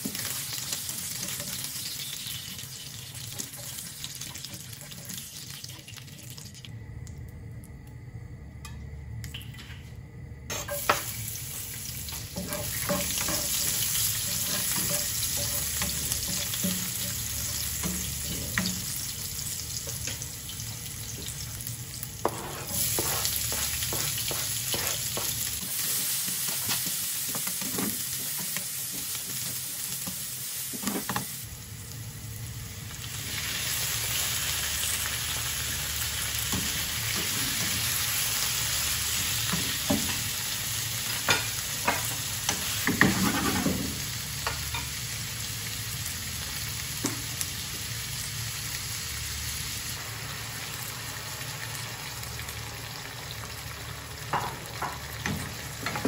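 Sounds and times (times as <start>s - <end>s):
oil sizzling in a frying pan: 0.0s - 6.7s, 10.5s - 56.0s
spatula scraping a pan: 12.3s - 18.7s, 22.2s - 29.1s, 42.8s - 43.9s.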